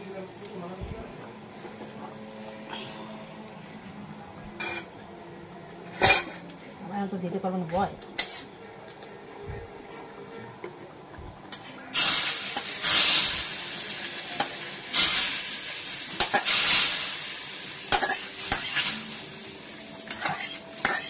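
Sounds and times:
hot oil sizzling: 0.0 - 6.4, 8.2 - 8.5, 11.5 - 21.0
spatula clinking and scraping pans: 4.6 - 5.0, 5.9 - 6.5, 8.2 - 8.6, 16.1 - 16.6, 17.9 - 19.0, 20.0 - 21.0.

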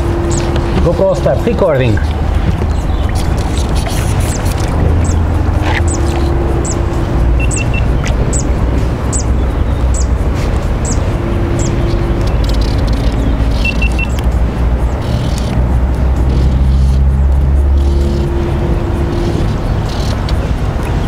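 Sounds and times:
low rumble: 0.0 - 21.0
quick beeps: 7.4 - 8.0, 13.6 - 14.2
short high chirps: 7.4 - 8.5.

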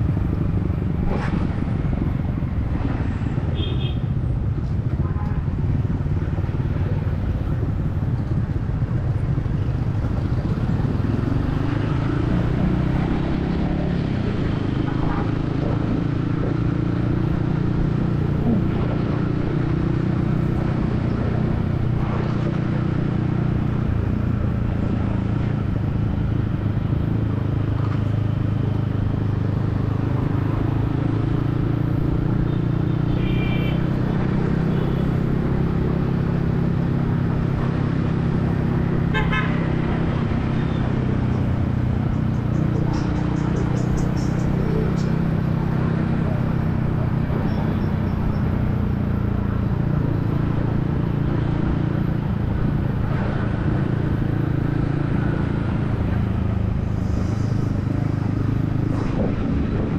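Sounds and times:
motorcycle engine running: 0.0 - 59.9
road rumble: 0.0 - 59.9
wind: 0.0 - 59.9
vehicle horn beeping: 33.0 - 33.8, 39.1 - 39.6.

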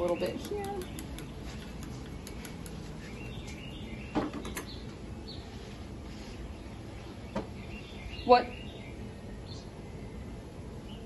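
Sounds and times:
scissors snipping hair: 0.0 - 2.8
birds chirping: 0.0 - 11.0.

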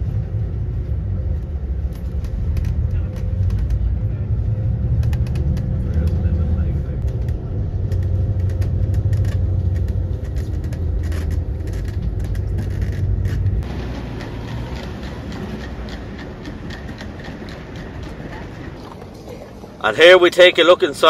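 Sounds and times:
engine and road rumble: 0.0 - 21.0
outdoor background noise: 0.0 - 21.0
small rattles: 7.0 - 13.7.

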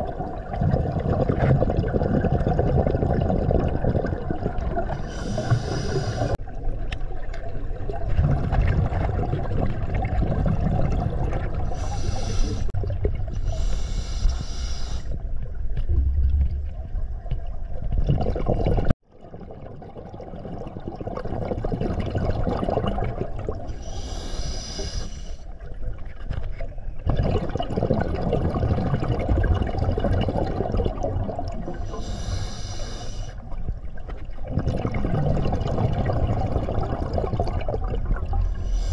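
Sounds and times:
rumble of exhaled bubbles: 0.0 - 13.9, 15.1 - 24.2, 25.6 - 32.3, 33.4 - 38.9
diver hissing inhalations: 5.0 - 6.4, 11.7 - 12.7, 13.4 - 15.2, 23.8 - 25.4, 31.9 - 33.4.

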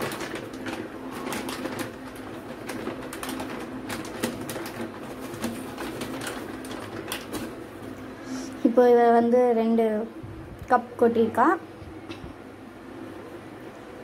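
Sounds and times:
plastic packet crinkling: 0.0 - 7.8.

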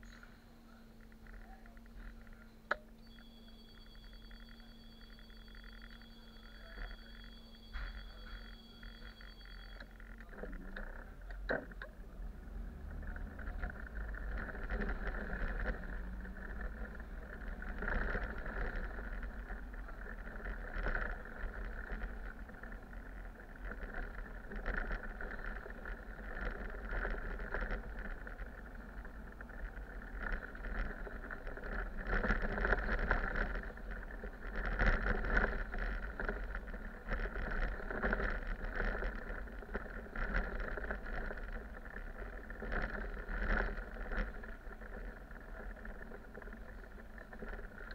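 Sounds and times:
bus engine and road noise: 9.8 - 47.9.

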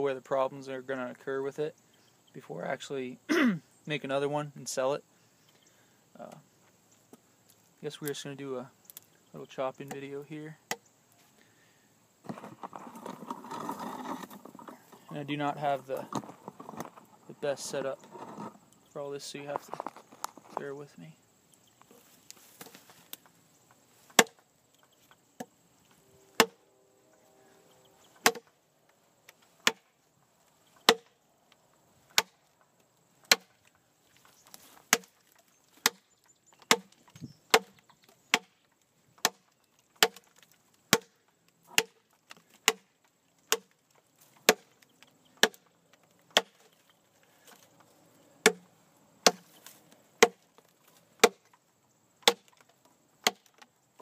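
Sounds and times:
knife chopping into log: 24.1 - 24.4, 26.4 - 26.6, 28.2 - 28.5, 29.6 - 29.8, 33.3 - 33.5, 34.9 - 35.1, 35.8 - 36.0, 36.7 - 36.9, 37.5 - 38.5, 40.0 - 40.3, 40.9 - 41.1, 41.7 - 42.0, 42.6 - 42.9, 44.4 - 44.7, 45.4 - 45.6, 46.3 - 46.6, 48.4 - 48.6, 49.2 - 49.6, 50.2 - 50.4, 51.2 - 51.4, 52.2 - 52.6.

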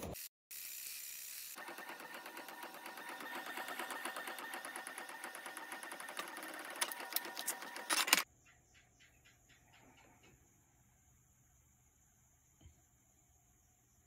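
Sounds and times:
inkjet printer ticking: 1.6 - 8.3
printer clicks: 1.6 - 8.3.

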